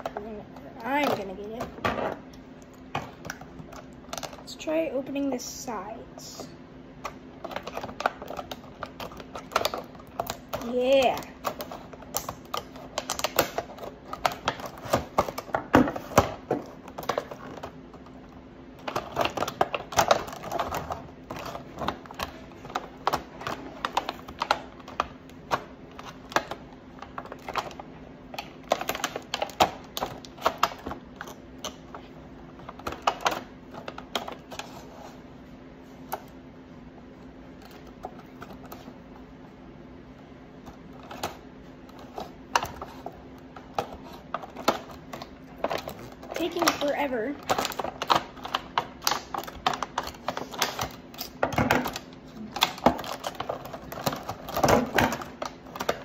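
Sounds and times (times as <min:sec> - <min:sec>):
scissors cutting plastic packaging: 0:07.4 - 0:17.8, 0:18.8 - 0:27.8, 0:43.7 - 0:56.0.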